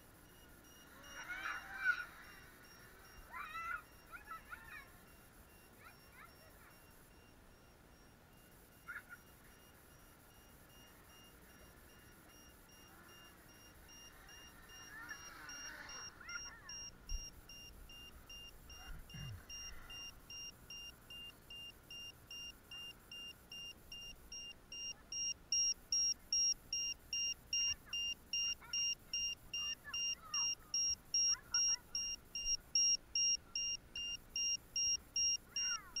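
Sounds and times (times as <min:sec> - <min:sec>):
electronic buzzer beeping: 0:00.0 - 0:04.1, 0:04.8 - 0:36.0.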